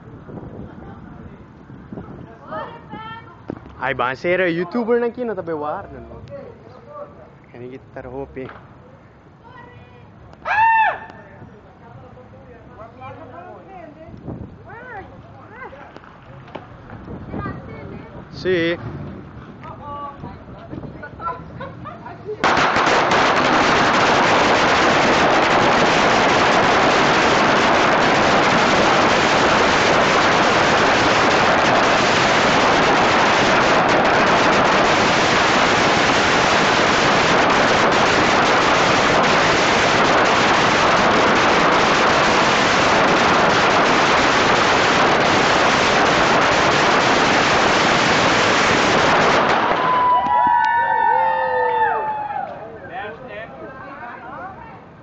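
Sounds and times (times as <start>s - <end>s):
firecrackers crackling: 14.4s - 19.7s, 22.4s - 52.6s.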